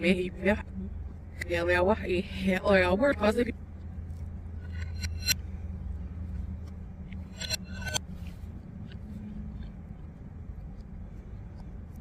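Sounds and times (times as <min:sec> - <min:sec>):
low hum: 0:00.0 - 0:12.0
chewing smacks: 0:08.2 - 0:12.0.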